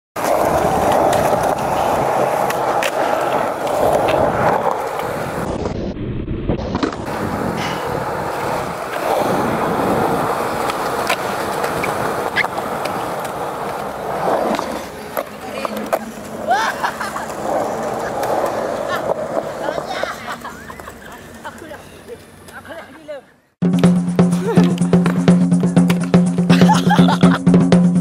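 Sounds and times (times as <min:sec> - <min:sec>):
skateboard clack: 0:00.2 - 0:05.8, 0:06.6 - 0:22.6, 0:23.7 - 0:27.4
skateboard wheels rolling on concrete: 0:00.2 - 0:28.0.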